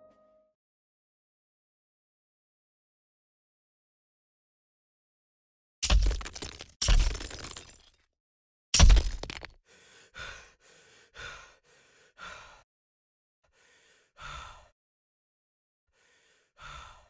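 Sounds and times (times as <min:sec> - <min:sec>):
person gasping for breath: 0:09.6 - 0:12.7, 0:13.4 - 0:14.8, 0:15.9 - 0:17.0.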